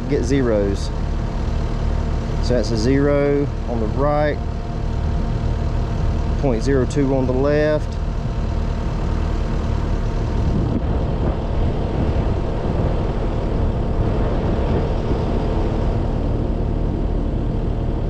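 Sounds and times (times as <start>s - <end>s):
diesel engine idling: 0.0s - 18.0s.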